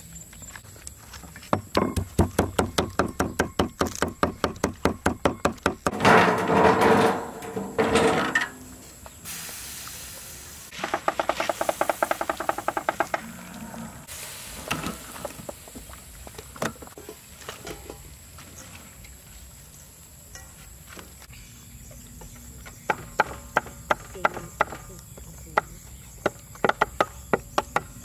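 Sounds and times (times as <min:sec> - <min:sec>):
cloth hissing on hot wok: 0:08.9 - 0:12.8, 0:14.0 - 0:16.4.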